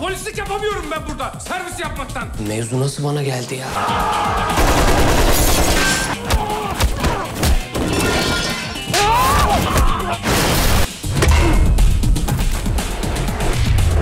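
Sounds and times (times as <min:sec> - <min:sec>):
action trailer music: 0:09.6 - 0:14.0.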